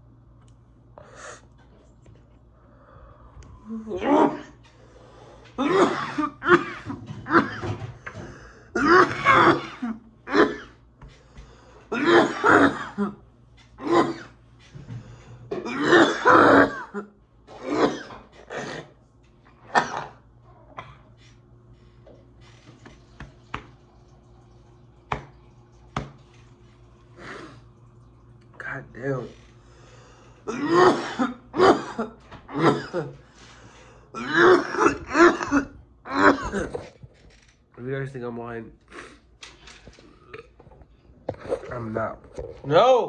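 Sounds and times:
man clearing throat: 3.9s - 4.6s, 5.6s - 7.9s, 8.7s - 10.8s, 11.9s - 13.2s, 13.8s - 14.4s, 15.5s - 19.0s, 30.5s - 33.2s, 34.2s - 37.0s
man coughing: 3.9s - 4.6s, 5.6s - 7.9s, 8.7s - 10.8s, 11.9s - 13.2s, 13.8s - 14.4s, 15.5s - 19.0s, 30.4s - 33.2s, 34.1s - 36.9s.

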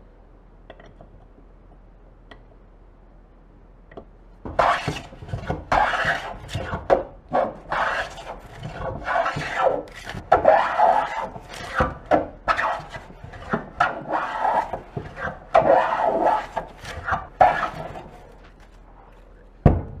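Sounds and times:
hand plane shaving wood: 4.5s - 18.8s.

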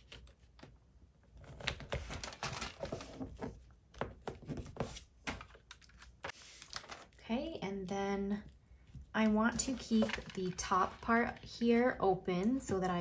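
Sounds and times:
paper rustling and crinkling: 1.4s - 3.6s, 4.3s - 7.2s, 9.2s - 11.5s.

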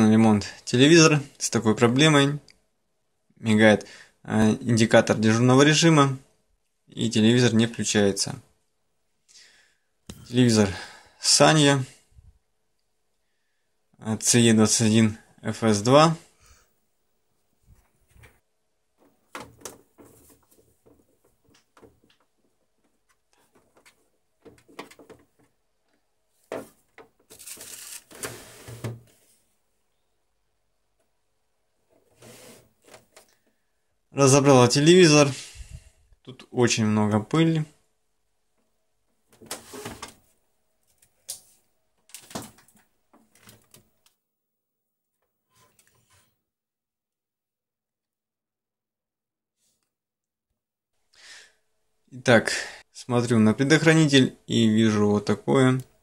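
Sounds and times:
phone handling scrapes and rustles: 19.0s - 22.1s, 26.4s - 29.4s, 31.9s - 33.3s, 39.4s - 40.2s
plastic clicks and knocks: 19.0s - 27.3s
plastic rustle: 26.5s - 28.7s.

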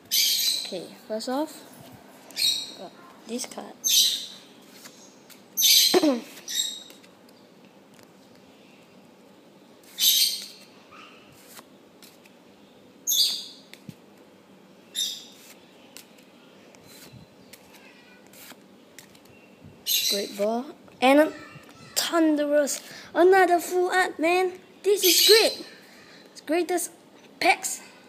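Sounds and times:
cards sliding swishes: 4.6s - 5.5s, 11.3s - 12.4s, 15.3s - 19.3s.

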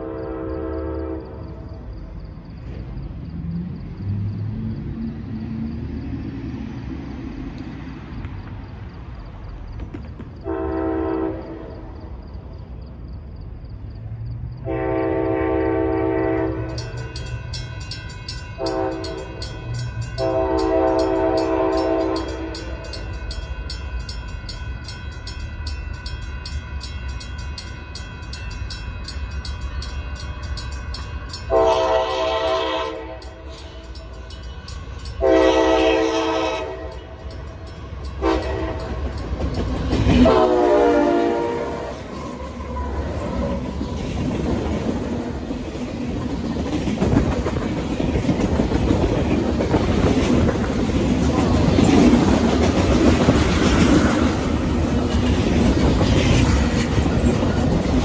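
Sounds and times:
train air horn: 0.0s - 1.8s, 10.4s - 12.0s, 14.6s - 17.4s, 18.6s - 22.8s, 31.5s - 33.8s, 35.2s - 37.2s, 38.2s - 39.1s, 40.0s - 43.7s
railroad crossing bell ringing: 14.7s - 58.0s.

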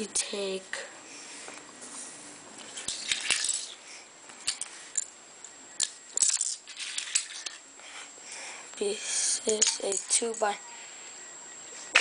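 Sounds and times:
plastic bricks clicking and rattling: 2.9s - 3.8s, 5.8s - 7.6s.

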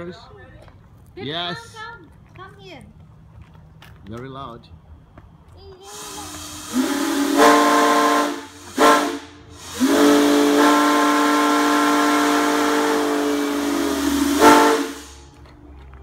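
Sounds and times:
steam whistle blasts: 5.8s - 15.3s
hissing steam: 5.8s - 15.4s.

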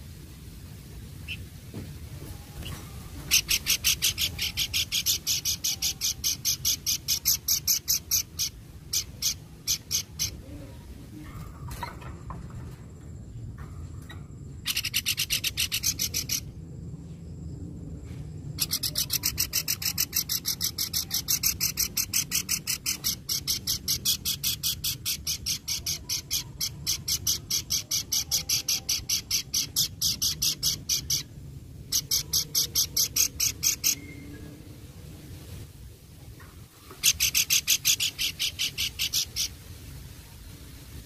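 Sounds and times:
bird giving harsh rasping chatter: 3.2s - 10.4s, 14.6s - 16.5s, 18.6s - 34.1s, 37.0s - 39.6s.

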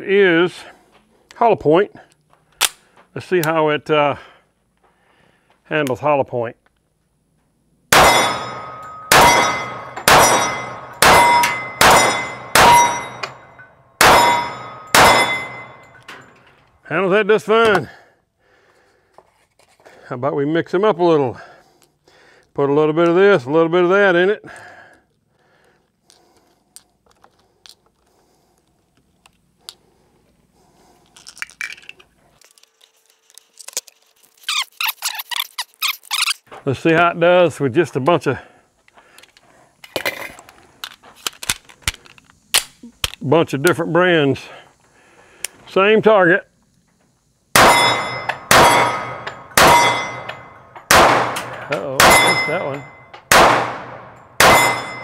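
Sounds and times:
pistol shots: 7.9s - 13.3s, 14.0s - 15.8s, 47.6s - 52.5s, 53.2s - 55.0s
rasping noise: 33.0s - 36.5s.

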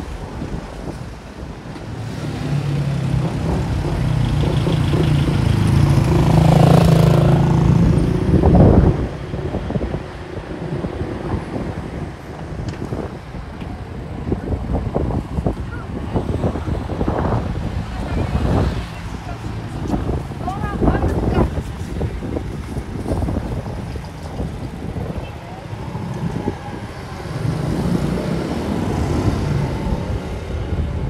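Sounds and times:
street traffic noise: 0.0s - 31.0s
vehicle engine passing by: 2.0s - 9.2s, 16.2s - 31.0s.

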